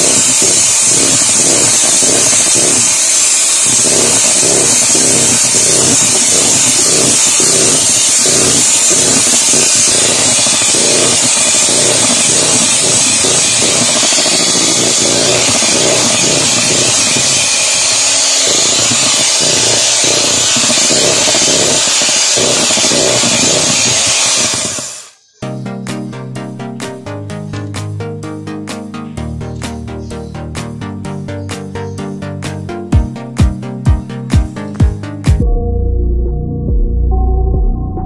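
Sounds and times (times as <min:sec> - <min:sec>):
electric hand mixer whipping cream: 0:00.0 - 0:25.2.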